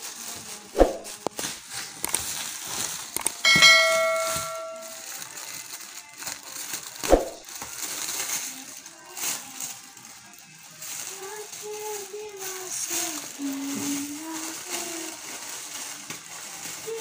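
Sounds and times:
plastic wrapping rustling: 0.0s - 17.0s
scissors cutting plastic: 0.2s - 3.4s
bell ding sound effect: 3.5s - 5.0s.

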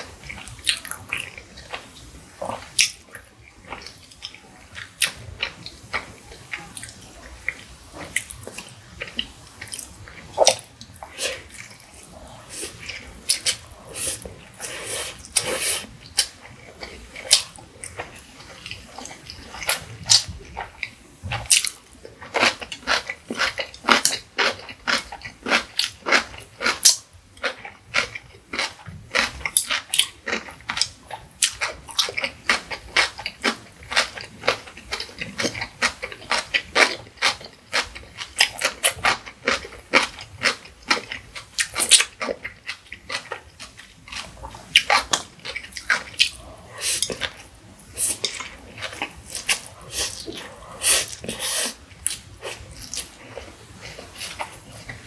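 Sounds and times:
wet chewing: 0.2s - 55.0s
person slurping noodles: 10.4s - 15.9s, 46.3s - 55.0s.

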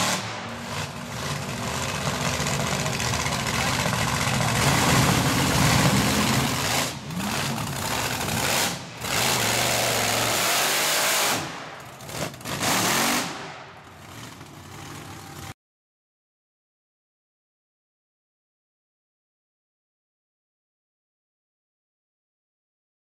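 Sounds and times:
truck engines revving hard: 0.0s - 15.5s.

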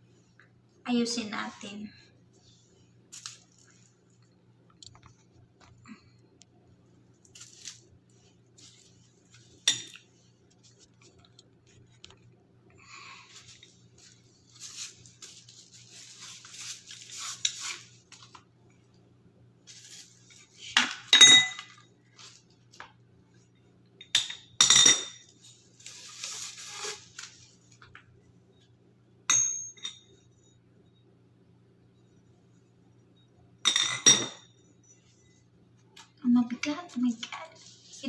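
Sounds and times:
light metal clink: 29.3s - 30.2s.

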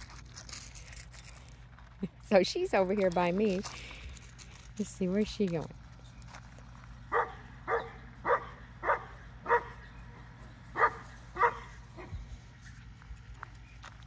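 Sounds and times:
dog barking: 7.1s - 9.8s, 10.8s - 12.1s.

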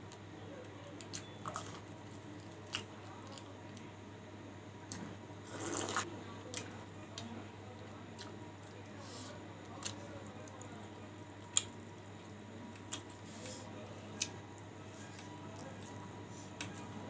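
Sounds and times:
slurp of soup: 5.5s - 6.1s.

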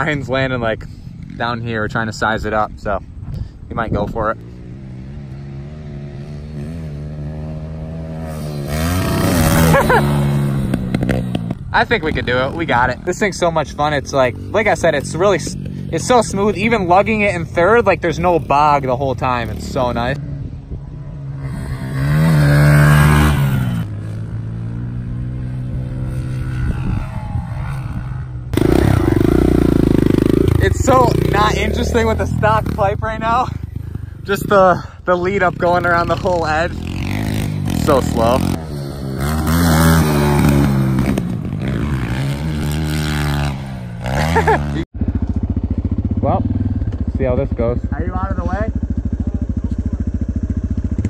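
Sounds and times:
dirt bike engine revving: 4.0s - 51.0s
close engine buzz: 4.4s - 11.8s, 35.2s - 47.6s.

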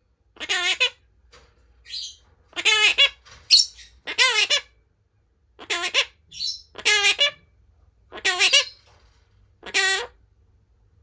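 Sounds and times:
parakeet squawks: 0.3s - 1.1s, 1.8s - 4.8s, 5.5s - 8.9s, 9.6s - 10.2s.

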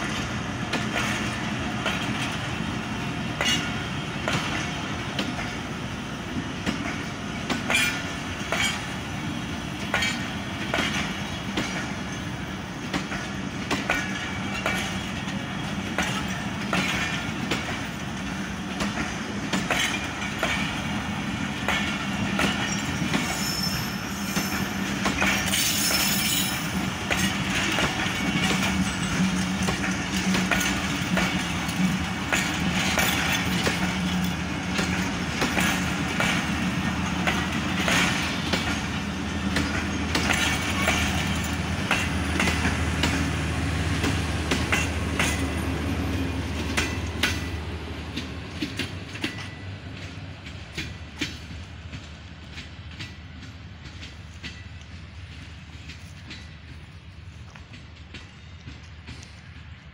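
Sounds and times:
train rumble: 0.0s - 59.9s
train wheels clacking on rail joints: 0.0s - 59.9s
high wheel squeals: 22.5s - 26.9s.

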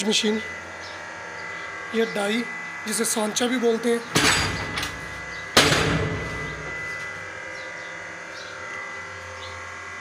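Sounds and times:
machinery humming: 0.0s - 10.0s
metallic clang of punch press: 4.2s - 5.0s, 5.6s - 6.7s.

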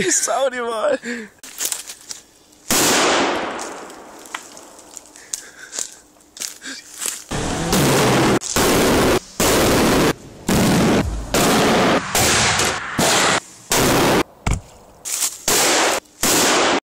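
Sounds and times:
sharp crack: 2.7s - 4.8s, 7.7s - 14.3s, 15.4s - 16.8s
firecrackers banging: 7.3s - 14.3s.

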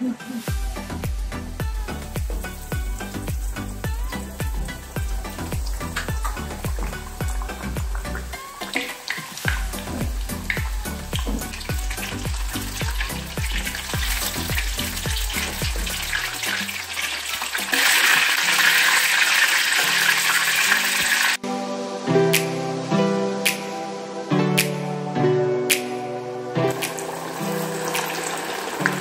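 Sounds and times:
background music: 0.0s - 29.0s
fish deep-frying in oil: 0.4s - 21.4s, 26.7s - 29.0s.

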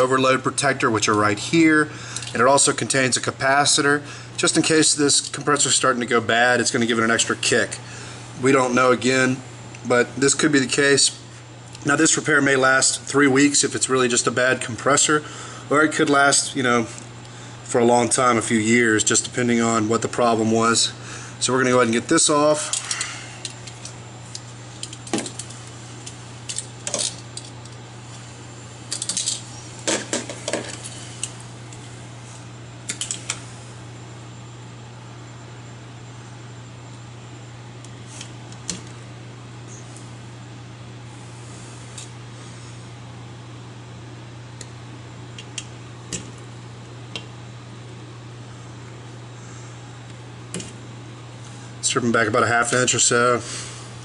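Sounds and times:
steady low hum: 0.0s - 54.0s
clicks and rattles of wire leads: 2.1s - 2.4s, 22.6s - 27.8s, 28.9s - 31.8s, 32.9s - 33.4s.

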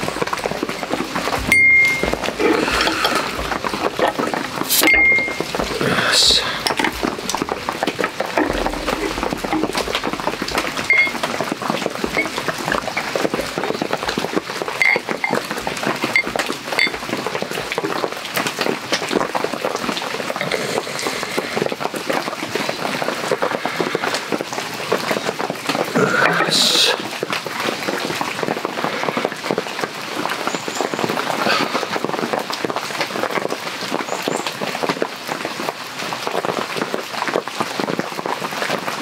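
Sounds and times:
beer pouring into glass: 0.0s - 17.0s
glass and bottle clinking: 0.0s - 17.0s
heavy rain pattering: 0.0s - 39.0s.

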